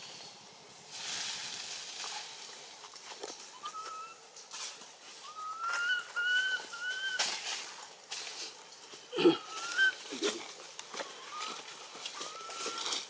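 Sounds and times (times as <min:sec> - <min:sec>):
high whistle-like animal calls: 0:03.5 - 0:04.2, 0:05.2 - 0:07.3, 0:09.3 - 0:10.4, 0:11.2 - 0:13.0
lower animal call: 0:03.5 - 0:04.2, 0:05.2 - 0:07.3, 0:09.1 - 0:10.4, 0:11.1 - 0:13.0.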